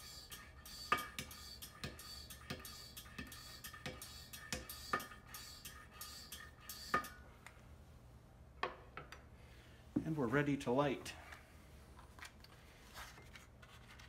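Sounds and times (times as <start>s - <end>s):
hand air pump strokes: 0.0s - 7.2s.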